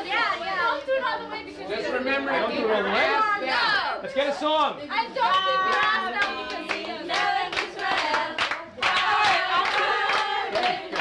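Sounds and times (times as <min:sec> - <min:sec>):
group singing: 0:00.0 - 0:03.9, 0:04.9 - 0:11.0
hands clapping: 0:05.3 - 0:11.0.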